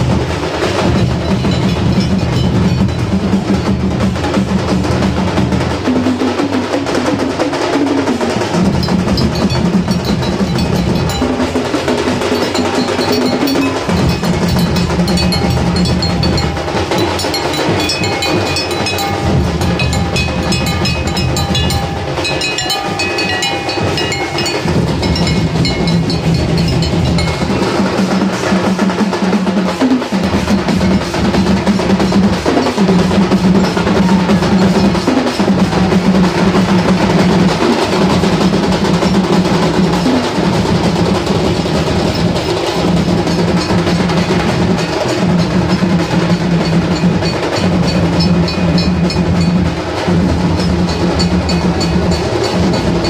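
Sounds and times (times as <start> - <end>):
fast continuous drumming: 0.0 - 53.0
brass band procession music: 8.4 - 29.4.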